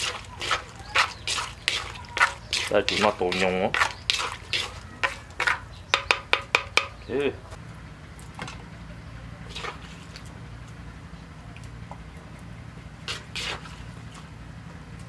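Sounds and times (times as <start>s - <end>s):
wet food scraping on a plate: 0.0s - 5.7s, 9.4s - 10.4s, 13.0s - 14.4s
steady low hum: 0.0s - 15.0s.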